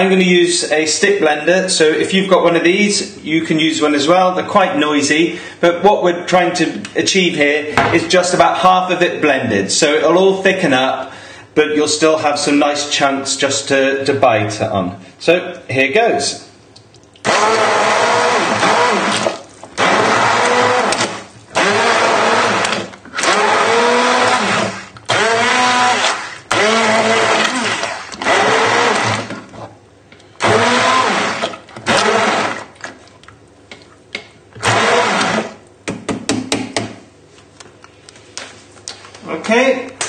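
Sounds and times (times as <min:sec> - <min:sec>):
stick blender pulsing: 0:17.2 - 0:29.6, 0:30.4 - 0:32.9, 0:34.6 - 0:35.6.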